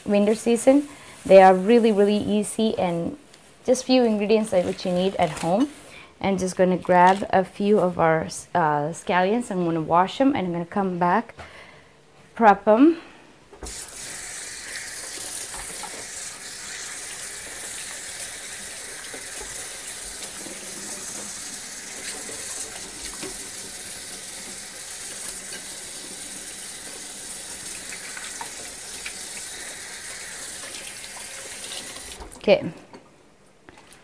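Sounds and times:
faucet running: 13.6s - 32.4s.

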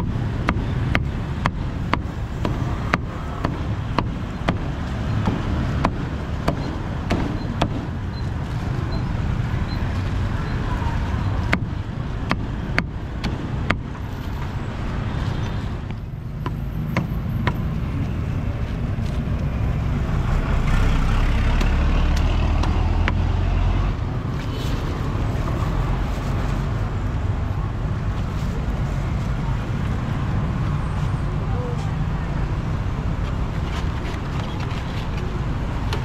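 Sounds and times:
passing vehicles rumble: 0.0s - 36.0s
sharp knocks: 0.4s - 7.9s.

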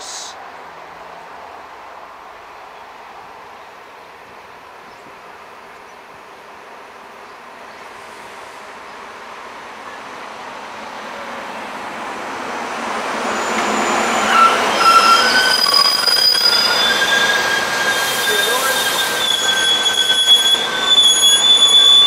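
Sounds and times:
brakes and wheels squealing: 12.9s - 22.0s.

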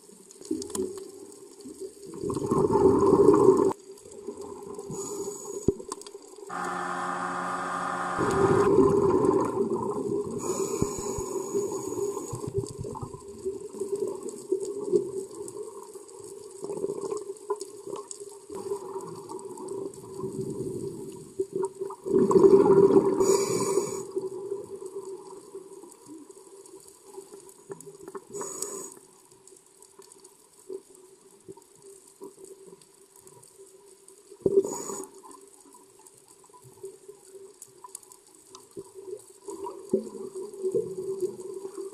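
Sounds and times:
steady low hum: 6.5s - 9.6s
muffled underwater noise: 6.5s - 12.6s
regulator exhale bubbles: 8.2s - 13.0s.

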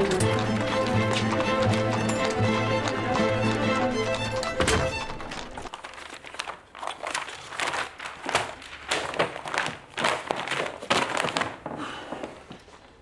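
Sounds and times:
orchestral music: 0.0s - 5.7s
paper rustling: 0.0s - 13.0s.

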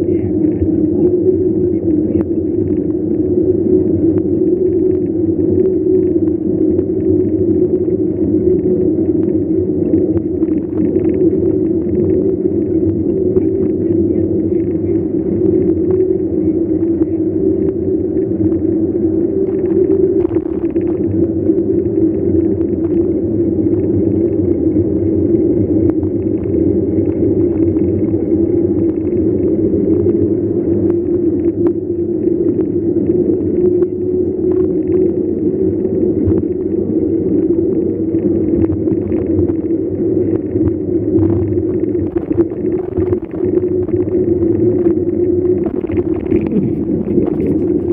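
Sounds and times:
steady low hum: 0.0s - 47.9s
wind on microphone: 0.0s - 47.9s.

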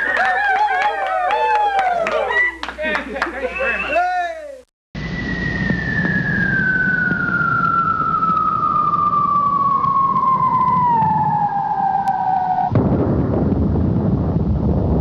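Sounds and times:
falling bomb whistle: 5.0s - 12.8s
low rumble: 5.0s - 15.0s.

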